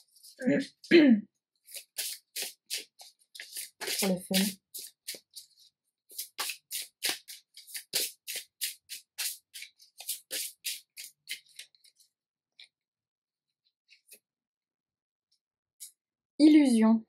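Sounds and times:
cards shuffled by hand: 0:01.6 - 0:12.1.

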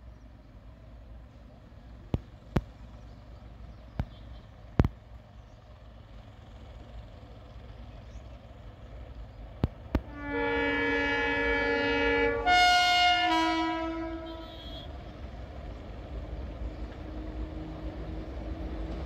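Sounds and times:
diesel locomotive horn chord: 0:10.0 - 0:15.4.

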